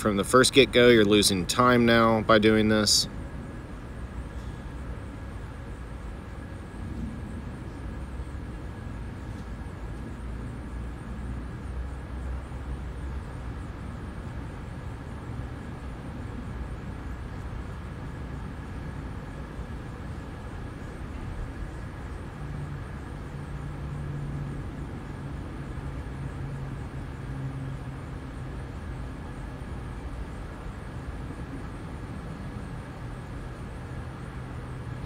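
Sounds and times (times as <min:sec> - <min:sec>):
faint high steady tone: 0:00.0 - 0:35.0.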